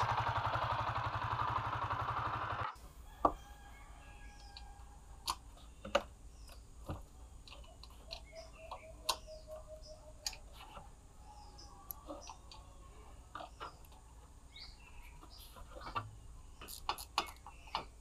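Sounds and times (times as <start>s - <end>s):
motorcycle engine idling: 0.0s - 2.8s.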